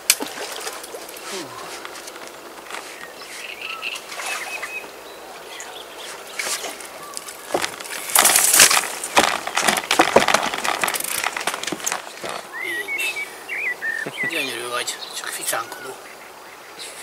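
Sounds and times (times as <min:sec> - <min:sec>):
fish thrashing in a net: 0:00.0 - 0:02.3, 0:06.4 - 0:12.5.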